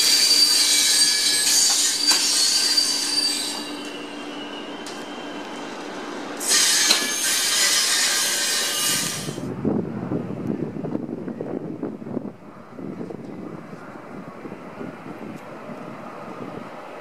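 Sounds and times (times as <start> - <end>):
train wheels squealing on rails: 0.0 - 9.5.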